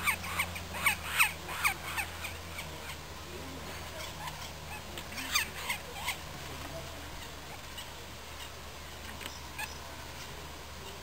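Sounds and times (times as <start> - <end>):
woodpecker calling: 0.0 - 6.3, 7.2 - 9.8
faint sharp clicks: 9.0 - 9.8.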